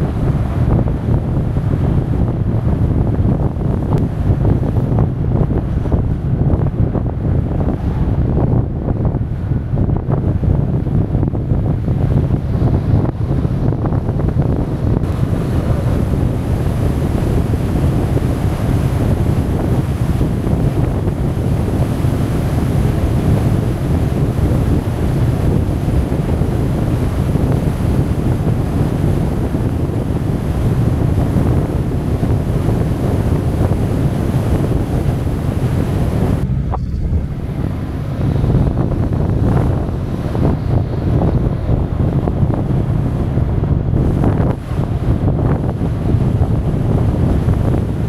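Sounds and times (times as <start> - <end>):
wind buffeting microphone: 0.0 - 48.0.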